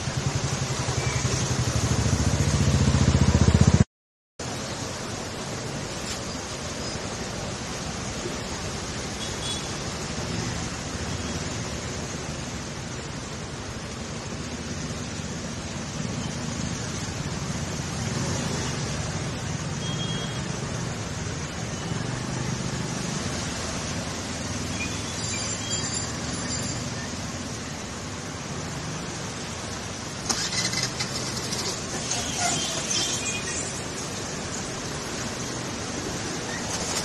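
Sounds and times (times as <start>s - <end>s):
vehicles splashing through water: 0.0s - 3.8s, 4.4s - 37.0s
vehicle engine hum: 26.8s - 37.0s.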